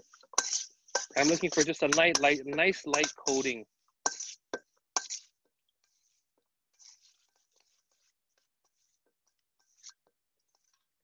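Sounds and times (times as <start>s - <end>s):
metal spoon scraping in steel bowl: 0.0s - 6.2s, 6.8s - 8.1s, 9.6s - 10.8s.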